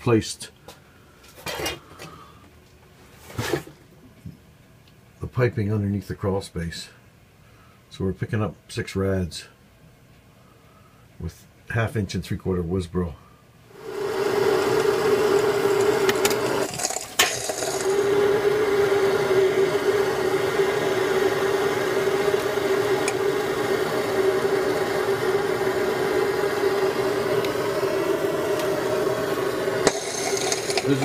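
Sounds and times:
gas torch hissing: 13.7s - 31.0s.

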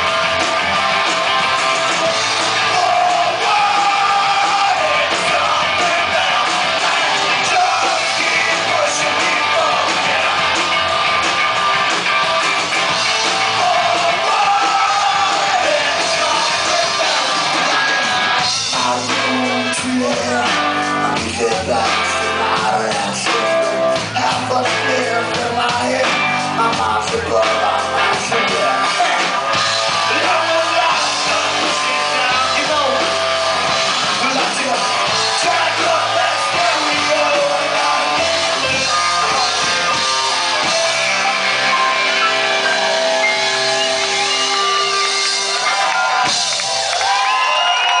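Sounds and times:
bass guitar: 0.0s - 48.0s
drums: 0.0s - 48.0s
electric guitar: 0.0s - 48.0s
person singing: 2.5s - 10.5s, 13.2s - 29.4s.

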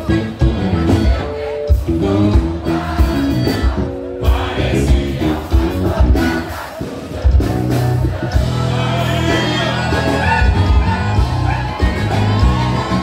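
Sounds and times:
man singing: 0.0s - 6.4s, 8.4s - 13.0s
accordion: 0.0s - 6.7s
bass guitar: 0.0s - 13.0s
drum kit beat: 0.0s - 13.0s.

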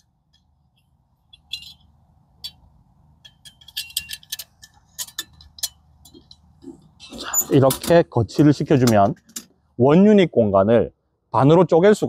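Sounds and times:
metal frame clicking and clinking: 1.3s - 9.5s.

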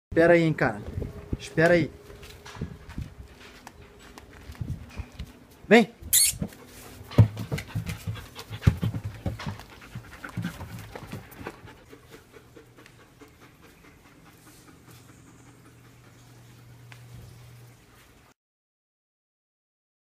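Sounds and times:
dogs panting: 6.3s - 18.2s.

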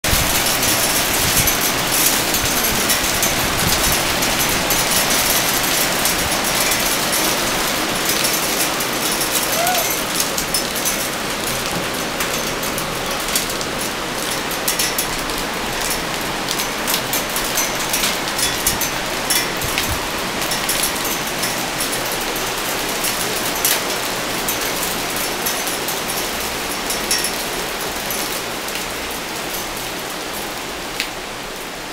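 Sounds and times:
hail and rain hiss: 0.0s - 31.9s
hailstones ticking on hard surfaces: 0.1s - 31.9s.

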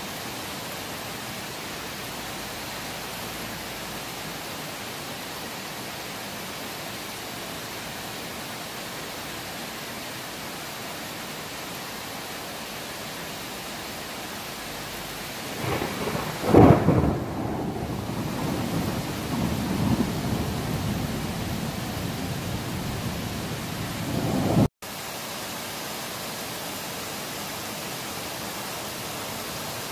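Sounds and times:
rain hissing: 0.0s - 29.9s
thunder crack and rumble: 15.5s - 24.7s.

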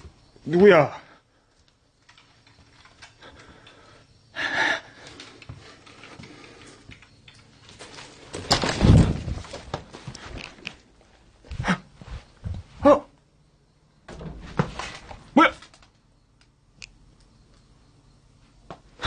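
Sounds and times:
low thumps and rustling: 7.6s - 10.6s, 14.0s - 15.3s
wooden door knocking and scuffing: 14.1s - 15.2s.

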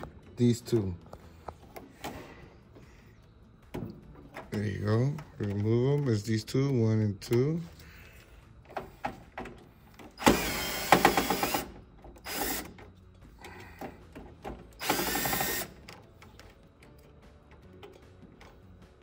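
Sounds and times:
cordless drill running: 10.2s - 12.8s, 14.8s - 15.8s.

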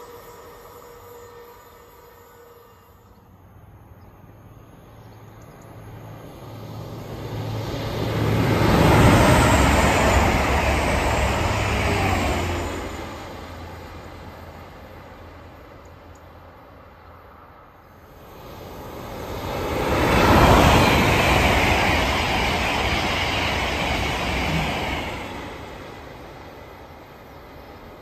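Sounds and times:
train wheels rumbling on rails: 5.2s - 16.4s, 18.1s - 28.0s.

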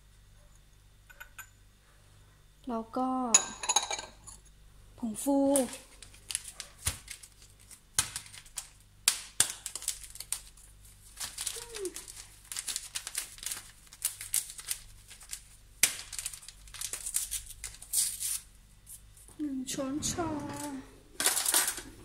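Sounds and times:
paper sachet crinkling: 5.5s - 19.0s, 20.4s - 22.0s.

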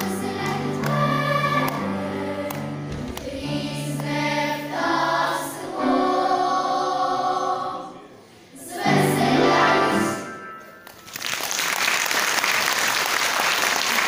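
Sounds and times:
audience applause: 11.0s - 14.0s.

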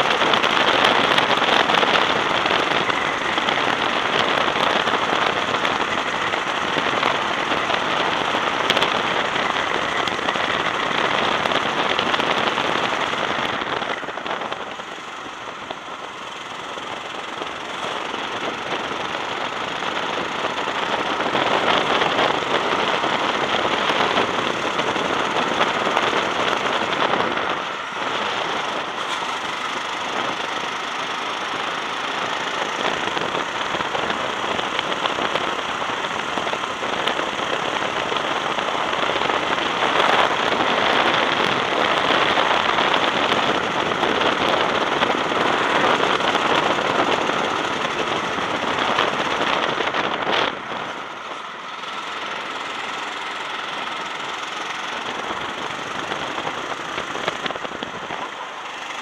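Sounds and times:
go-kart engine running hard: 0.0s - 59.0s
wind buffeting microphone: 31.4s - 51.8s, 52.6s - 58.4s.

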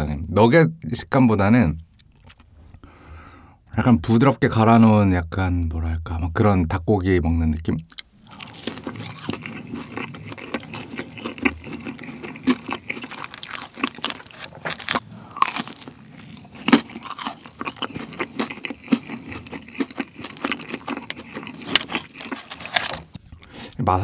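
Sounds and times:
crunching and chewing food: 1.9s - 2.8s, 7.6s - 23.9s.

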